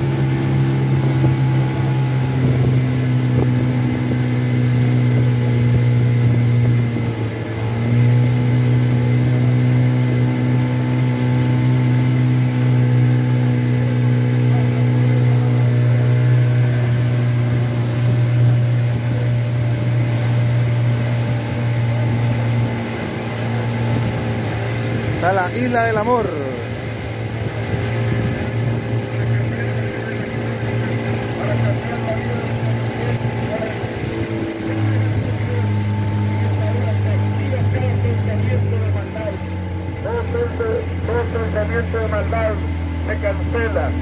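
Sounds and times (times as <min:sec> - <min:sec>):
motorboat engine running: 0:00.0 - 0:44.0.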